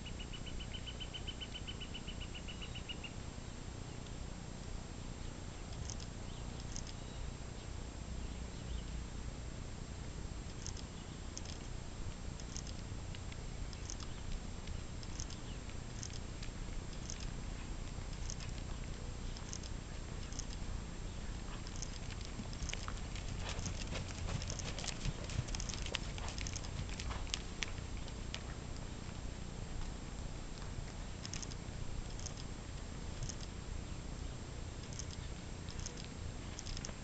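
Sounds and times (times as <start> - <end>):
horse hoof clicks on sand: 21.5 - 28.6.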